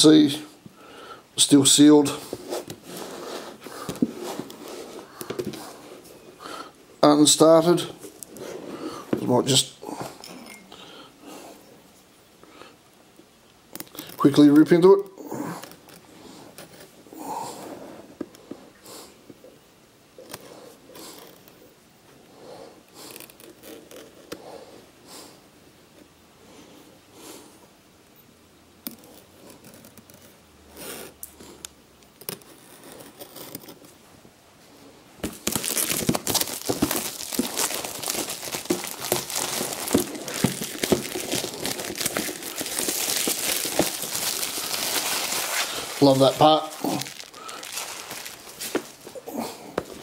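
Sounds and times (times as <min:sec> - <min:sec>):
plastic film crinkling: 0:35.2 - 0:50.0.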